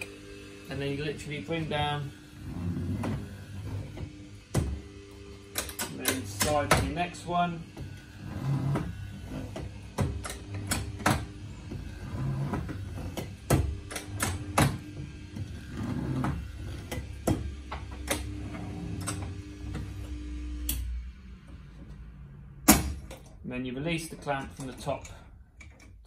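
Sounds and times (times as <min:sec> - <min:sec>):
electric drill humming: 0:00.0 - 0:21.6
sharp clicks and knocks: 0:05.5 - 0:07.0, 0:08.7 - 0:11.3, 0:12.5 - 0:15.5, 0:16.2 - 0:18.4, 0:24.2 - 0:26.0.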